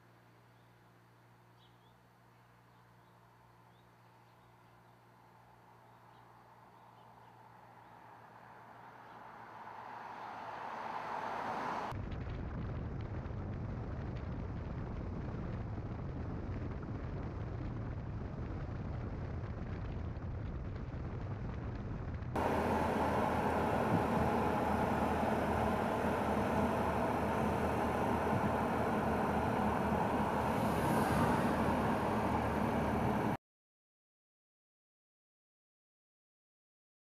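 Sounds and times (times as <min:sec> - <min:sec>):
road and engine noise: 0:02.2 - 0:12.0, 0:22.2 - 0:33.4
car low rumble: 0:05.8 - 0:33.4.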